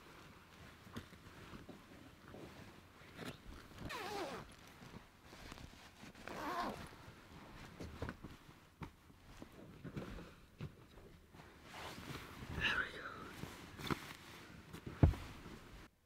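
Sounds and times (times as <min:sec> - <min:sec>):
bedding rustling: 0:00.0 - 0:15.9
zip-like sliding sound: 0:03.8 - 0:04.5, 0:06.2 - 0:06.9
soft knocks: 0:15.0 - 0:15.3.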